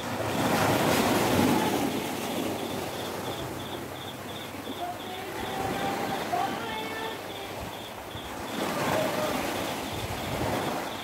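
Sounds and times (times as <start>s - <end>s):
sea waves breaking on beach: 0.0s - 11.0s
faint high chirp: 2.2s - 6.0s, 7.0s - 11.0s.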